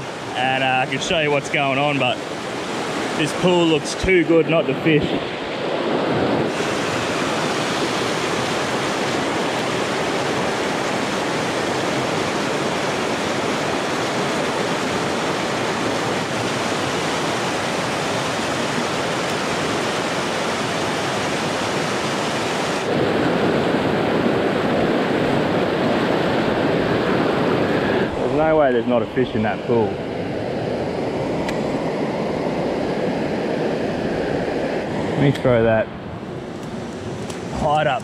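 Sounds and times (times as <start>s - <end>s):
creek rapids rushing over rocks: 5.8s - 23.0s.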